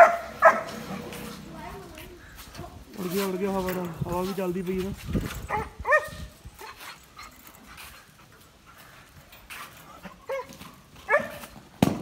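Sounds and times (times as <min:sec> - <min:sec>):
dog panting softly: 0:06.6 - 0:10.2.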